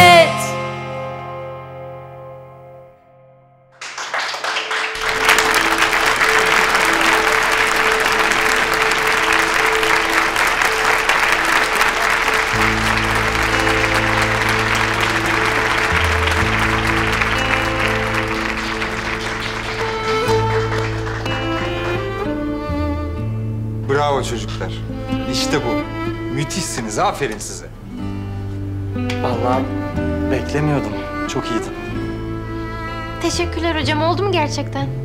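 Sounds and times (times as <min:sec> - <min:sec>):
background music: 0:00.0 - 0:35.0
audience clapping: 0:03.8 - 0:22.7.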